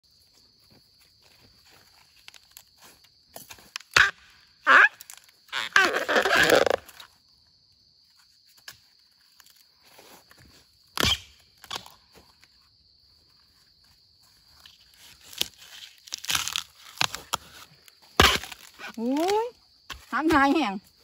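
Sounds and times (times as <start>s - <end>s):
small crunches: 14.5s - 20.2s
sharp crack: 18.2s - 19.3s.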